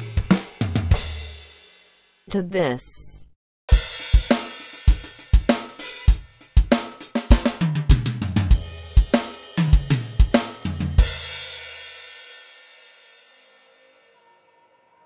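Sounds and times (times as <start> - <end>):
drum kit groove: 0.0 - 1.8, 3.7 - 12.8.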